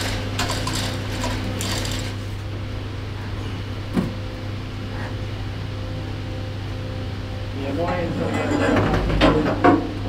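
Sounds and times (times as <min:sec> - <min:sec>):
metal parts clinking and rattling: 0:00.0 - 0:02.2
low hum: 0:00.0 - 0:10.0.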